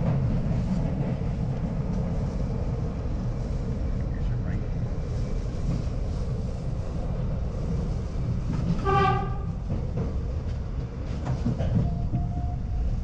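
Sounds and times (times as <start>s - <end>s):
train wheels rumbling on rail: 0.0s - 13.0s
short train horn blast: 8.7s - 9.6s.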